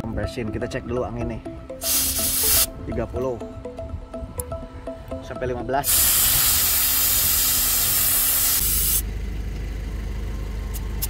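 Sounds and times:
air hissing from tyre valve: 1.8s - 2.7s, 5.8s - 9.0s
low steady rumble: 2.7s - 11.0s.

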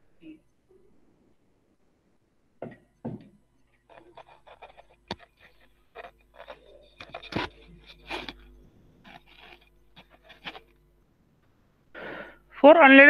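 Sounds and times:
headset microphone handling noise: 3.9s - 10.8s.

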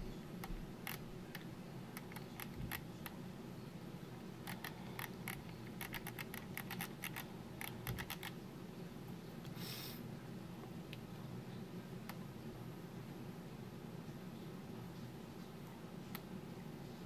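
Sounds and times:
low steady hum: 0.0s - 17.0s
mouse scroll wheel clicking: 0.4s - 1.4s, 2.0s - 2.8s, 4.5s - 8.3s.

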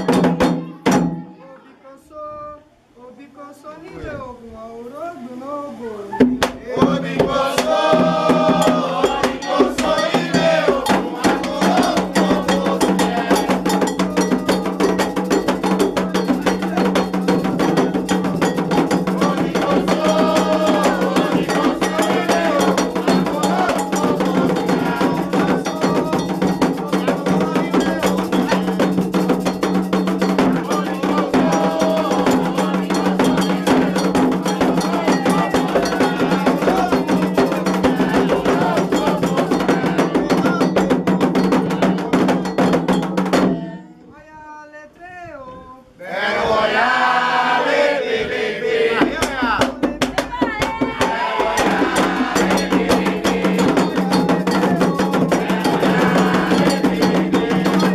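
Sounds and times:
hand drums: 0.0s - 1.4s, 6.1s - 44.1s, 49.0s - 57.9s
voices singing a chant: 4.8s - 57.9s.

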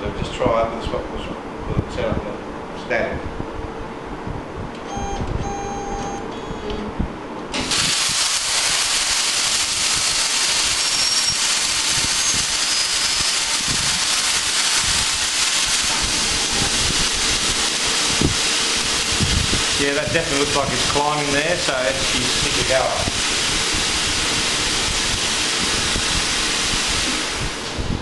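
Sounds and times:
plasma cutter hissing: 7.6s - 27.7s.

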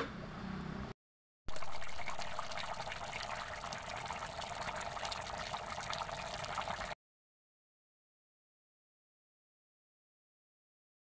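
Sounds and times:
pot boiling with bubbling pops: 1.5s - 7.0s.

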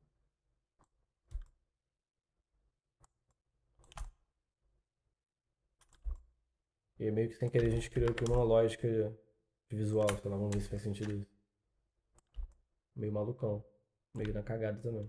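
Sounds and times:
computer mouse and keyboard clicks: 3.0s - 4.2s, 5.8s - 6.3s, 7.4s - 8.5s, 9.9s - 11.2s, 14.2s - 15.0s.

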